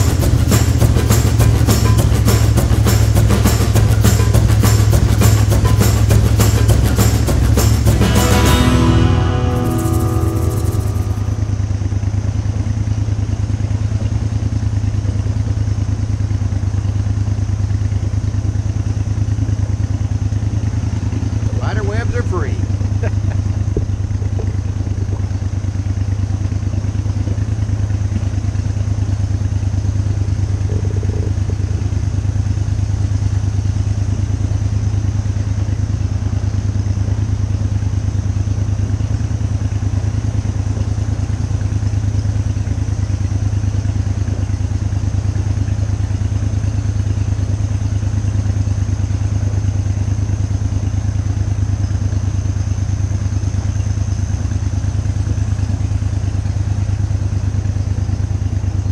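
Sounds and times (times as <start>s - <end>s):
boat motor droning: 0.0s - 58.9s.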